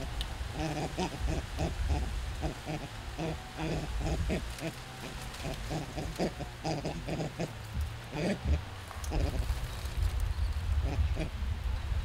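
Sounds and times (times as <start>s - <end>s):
monkeys chattering: 0.0s - 9.6s.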